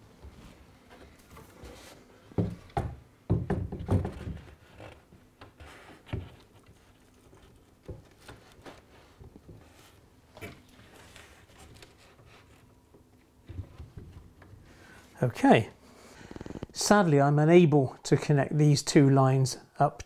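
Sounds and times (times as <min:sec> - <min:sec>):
dull wooden knocks: 0:02.4 - 0:04.6.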